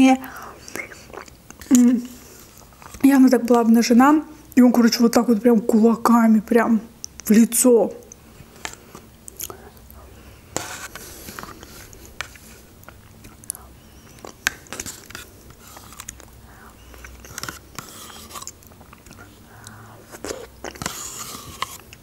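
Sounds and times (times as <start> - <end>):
mouth eating sounds: 0.2 - 2.7, 9.2 - 10.1, 15.6 - 21.3
spoon scraping plastic cup: 10.6 - 12.6, 14.1 - 16.2, 16.8 - 19.2, 20.1 - 22.0.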